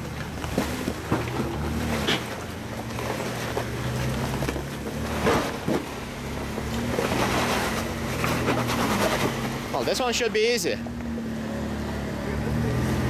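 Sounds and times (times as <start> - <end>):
knocks and crunches on rocks: 0.0 - 9.7
engine running low: 0.0 - 13.0.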